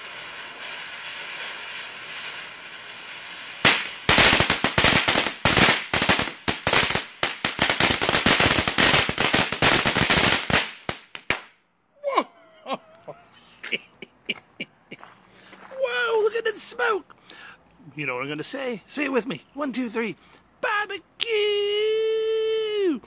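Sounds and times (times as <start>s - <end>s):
firework spark hiss: 0.0s - 11.5s
firework crackling pops: 0.0s - 11.6s.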